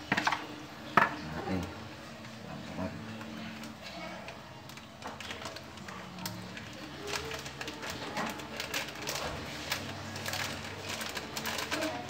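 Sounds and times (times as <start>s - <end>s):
plastic packet crinkling: 3.1s - 12.0s.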